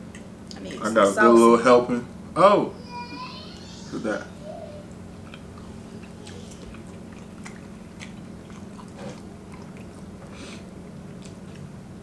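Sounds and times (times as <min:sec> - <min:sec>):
low room hum: 0:00.0 - 0:12.0
people chewing food: 0:04.7 - 0:12.0
wet mouth clicks: 0:05.3 - 0:11.7.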